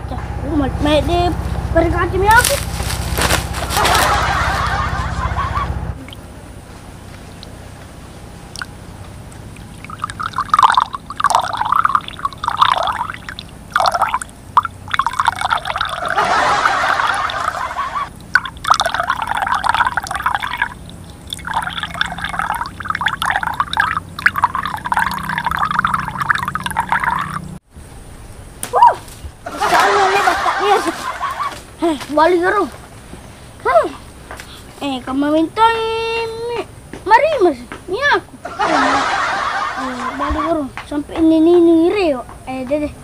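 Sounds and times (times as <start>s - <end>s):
liquid splashing into glass mug: 9.6s - 17.6s, 18.2s - 27.5s.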